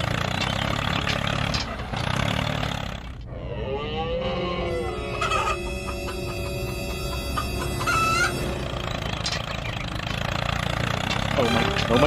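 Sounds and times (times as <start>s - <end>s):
motor rumbling: 0.0s - 12.0s
droning tone: 3.3s - 9.6s.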